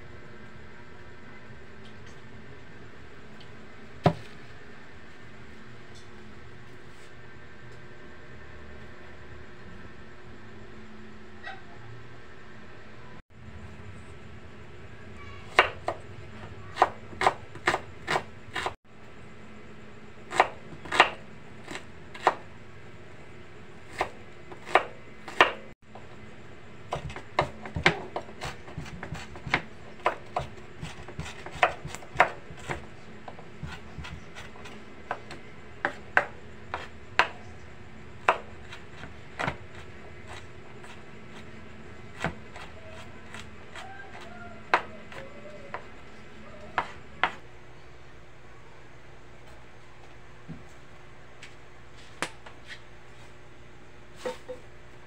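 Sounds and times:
knife chopping on wooden board: 0:04.0 - 0:04.4, 0:15.5 - 0:16.0, 0:16.7 - 0:18.8, 0:20.3 - 0:22.5, 0:23.9 - 0:25.6, 0:26.9 - 0:37.5, 0:38.2 - 0:41.5, 0:42.1 - 0:45.9, 0:46.7 - 0:47.4.

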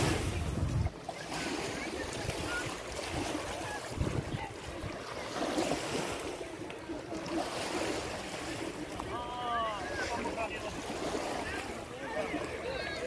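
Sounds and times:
wind rumbling on microphone: 0:00.0 - 0:06.0
waves washing onto sandy shore: 0:00.0 - 0:13.0.

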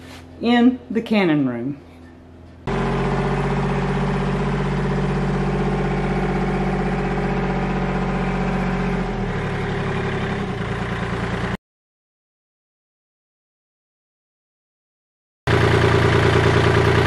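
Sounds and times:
tractor diesel engine running: 0:02.3 - 0:11.6, 0:15.5 - 0:17.0.

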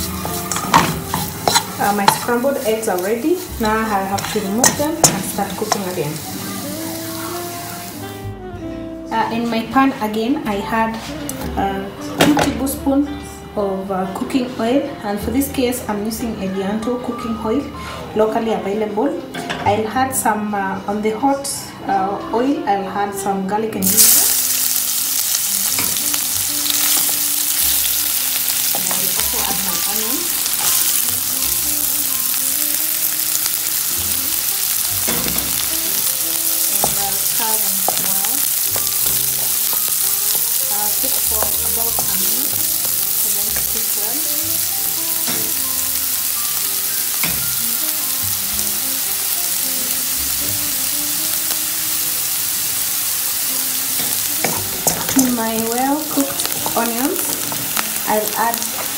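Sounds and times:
wooden spatula scraping wok: 0:00.0 - 0:06.0
aromatics sizzling in oil: 0:00.0 - 0:08.4, 0:23.8 - 0:58.9.

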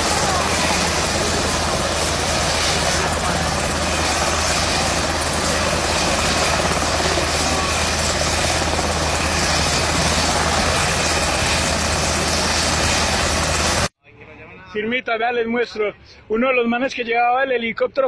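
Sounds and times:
helicopter rotor and engine: 0:00.0 - 0:13.9.

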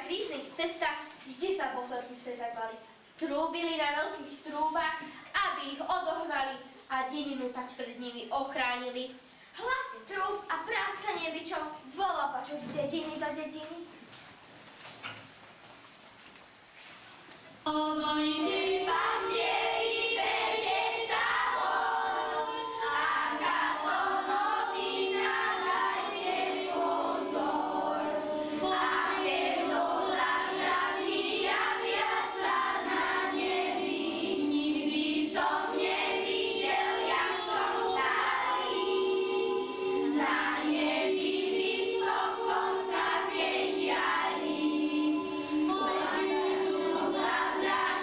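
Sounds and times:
children's choir singing: 0:17.7 - 0:48.0.

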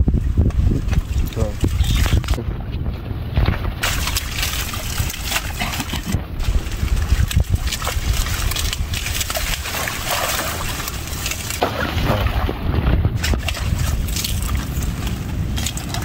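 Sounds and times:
water sloshing: 0:00.2 - 0:16.0
leaves and stems rustling: 0:03.4 - 0:16.0.

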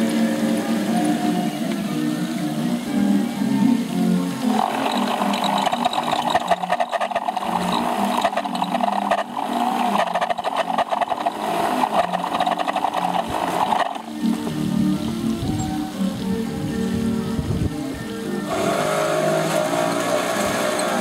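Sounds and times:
carousel motor rattling whirr: 0:00.0 - 0:21.0.

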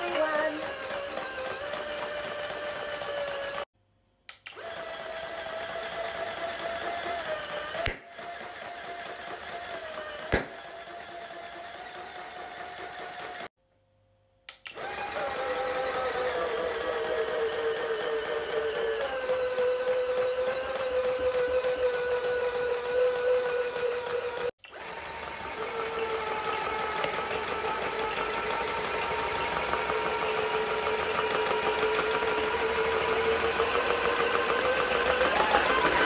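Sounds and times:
toy motor whine: 0:00.0 - 0:03.7, 0:04.5 - 0:13.5, 0:14.7 - 0:36.0
sharp clicks: 0:14.5 - 0:14.9.

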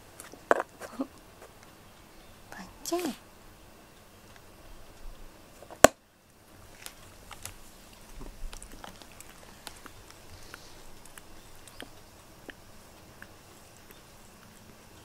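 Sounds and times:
cat licking fur: 0:06.8 - 0:14.9.

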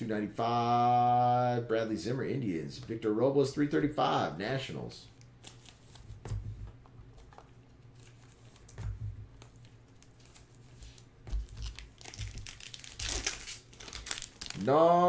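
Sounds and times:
foil wrappers crinkling: 0:05.2 - 0:06.2, 0:09.4 - 0:14.8.

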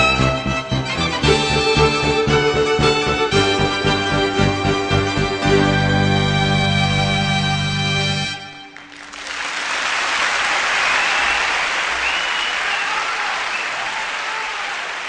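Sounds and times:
music: 0:00.0 - 0:09.7
audience applauding: 0:08.5 - 0:15.0.

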